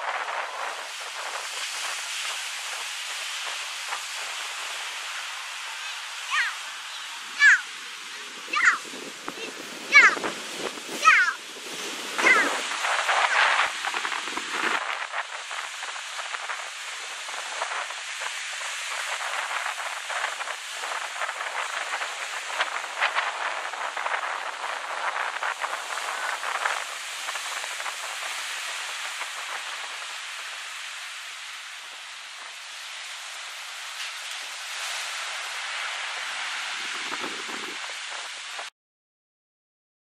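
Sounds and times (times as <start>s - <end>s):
surf breaking on sandy beach: 0.0s - 38.7s
bending high-pitched sounds: 6.3s - 7.7s, 8.4s - 10.3s.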